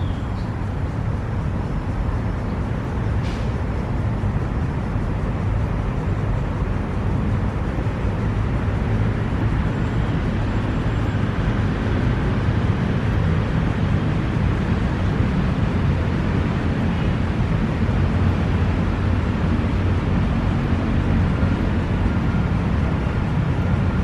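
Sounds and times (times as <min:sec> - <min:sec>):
distant road traffic rumble: 0:00.0 - 0:24.0.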